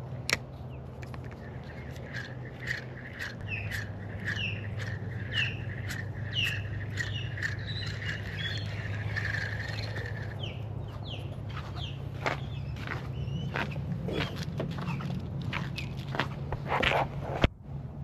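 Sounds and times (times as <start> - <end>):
birds chirping: 0.2 - 16.2.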